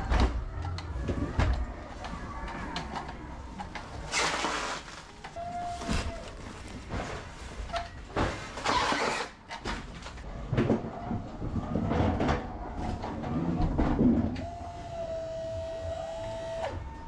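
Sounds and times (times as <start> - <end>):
pallet truck knocks and rattles: 6.8 - 14.4
electric motor whine: 14.4 - 17.0.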